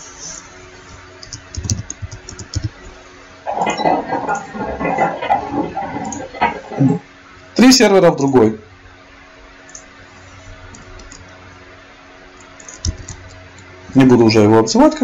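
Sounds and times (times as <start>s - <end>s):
computer keyboard typing: 1.2s - 2.7s.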